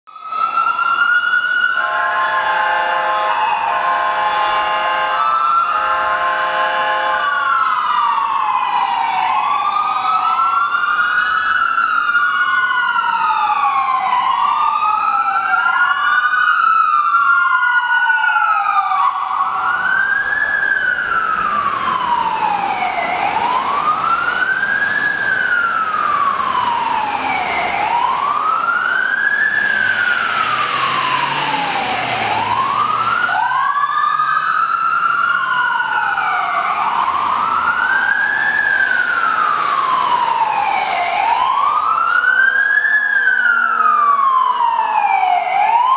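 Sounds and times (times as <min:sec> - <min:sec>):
engine and road noise: 0:00.1 - 0:45.9
wailing sirens: 0:00.1 - 0:45.9
vehicle horn blast: 0:01.8 - 0:05.2, 0:05.8 - 0:07.2.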